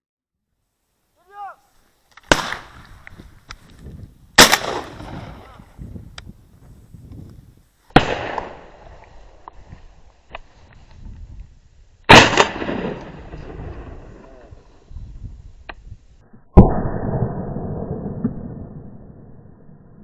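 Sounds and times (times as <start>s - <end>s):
shotgun shots with echo: 2.3s - 2.8s, 4.4s - 5.6s, 7.9s - 8.7s, 12.1s - 14.0s.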